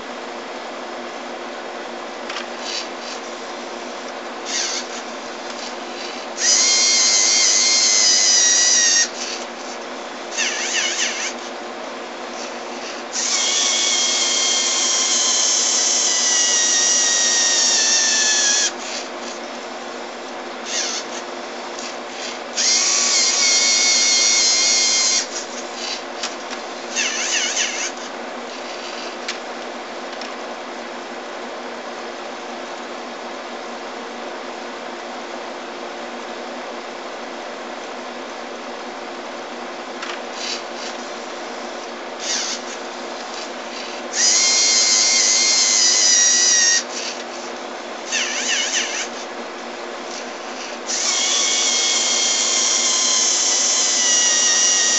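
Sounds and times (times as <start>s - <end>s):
steady hum: 0.0s - 54.9s
robot motors and gears whining: 2.4s - 3.3s, 4.4s - 9.7s, 10.3s - 11.5s, 20.6s - 29.3s, 40.4s - 47.2s, 48.1s - 49.2s, 50.1s - 54.9s.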